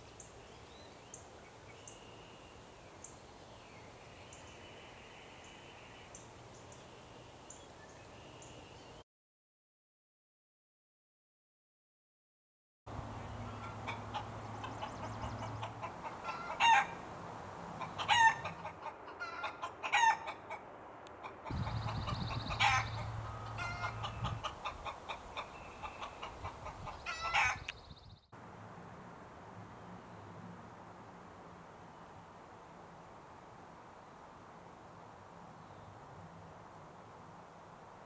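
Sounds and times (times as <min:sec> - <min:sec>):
chickens clucking: 0:13.2 - 0:17.0, 0:17.8 - 0:20.6, 0:21.2 - 0:27.7.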